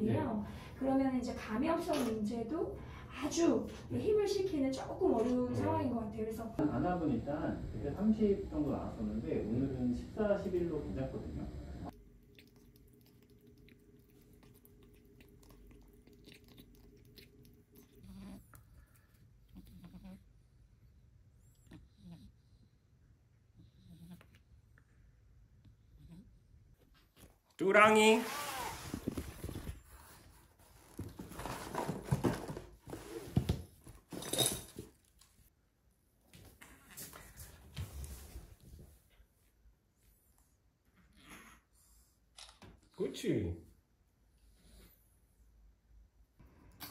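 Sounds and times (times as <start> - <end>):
kitten chewing wet food: 11.9 - 19.2
cardboard box rustling: 30.7 - 33.7.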